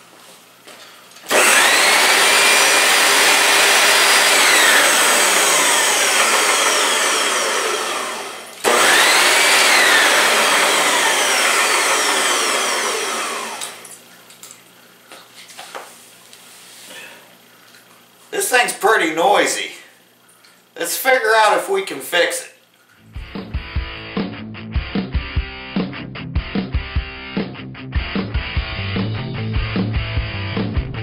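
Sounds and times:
vacuum cleaner motor whining: 1.2s - 14.0s.

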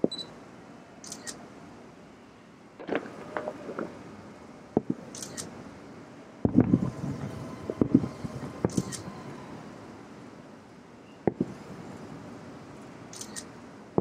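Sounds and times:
distant fireworks booming: 2.8s - 5.1s, 6.4s - 9.7s.

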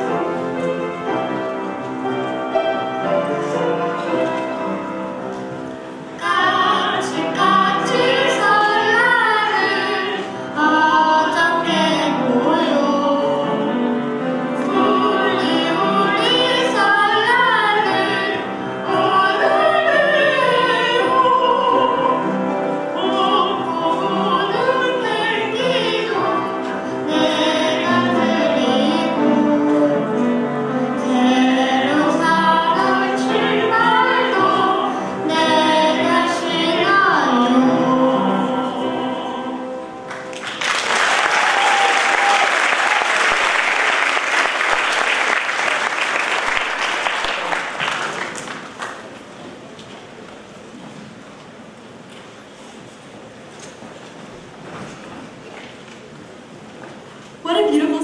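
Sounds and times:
musical accompaniment: 0.0s - 49.8s
girl singing: 6.2s - 13.8s, 14.6s - 22.1s, 23.0s - 29.8s, 30.9s - 39.6s
woman singing: 6.2s - 13.8s, 14.6s - 22.1s.

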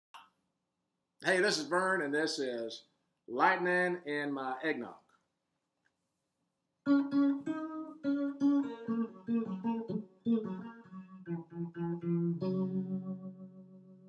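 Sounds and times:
plucked guitar melody: 6.9s - 14.0s.

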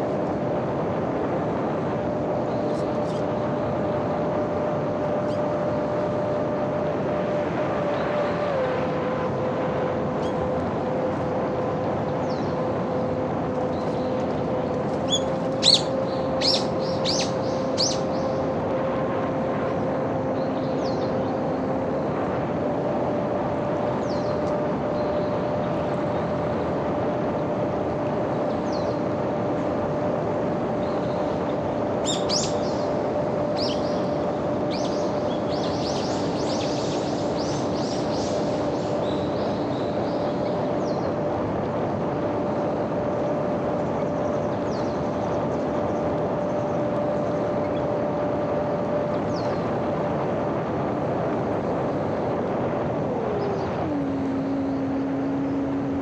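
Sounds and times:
birds chirping: 12.0s - 18.5s, 30.7s - 41.3s, 42.5s - 50.0s
model airplane motor droning: 39.4s - 56.0s.

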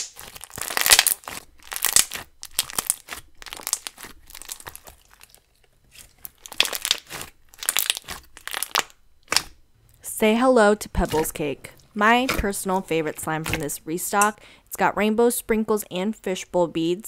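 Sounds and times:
hands squishing slime: 0.0s - 9.6s, 11.0s - 14.3s
slime crackles and squelching pops: 0.0s - 9.6s, 12.2s - 13.8s.

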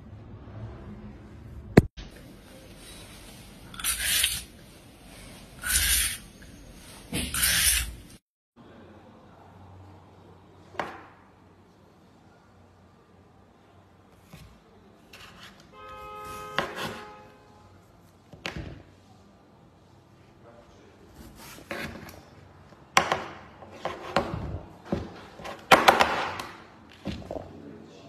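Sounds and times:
peeler scraping cucumber: 3.7s - 4.6s, 5.6s - 8.2s.

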